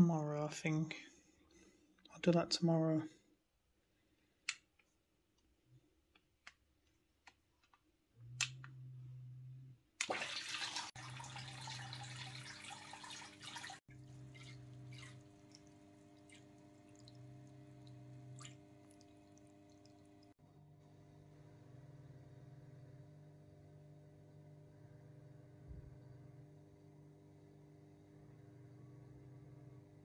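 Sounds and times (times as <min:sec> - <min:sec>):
aquarium pump hum: 0:08.2 - 0:30.0
trickling and dripping water: 0:10.0 - 0:20.4.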